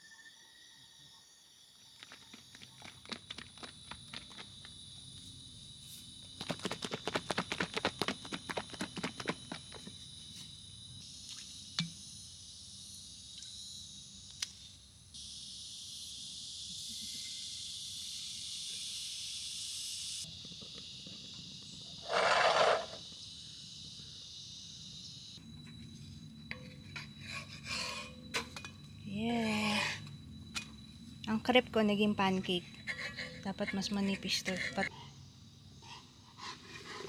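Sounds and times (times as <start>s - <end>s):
high-pitched insect buzzing: 10.6s - 28.2s.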